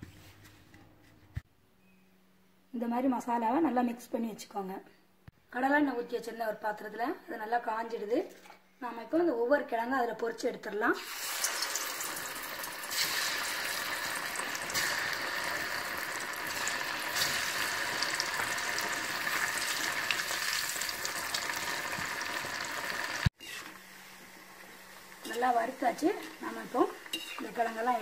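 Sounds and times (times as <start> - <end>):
oil sizzling and bubbling: 11.0 - 28.0.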